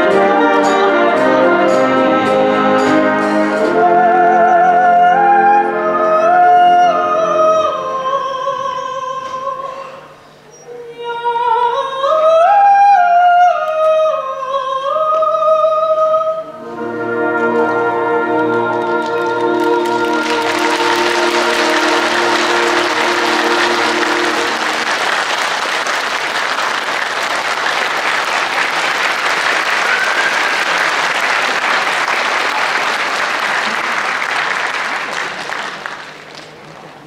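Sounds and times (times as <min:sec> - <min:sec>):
band holding low chord: 0:16.6 - 0:25.3
audience applauding: 0:18.7 - 0:37.0.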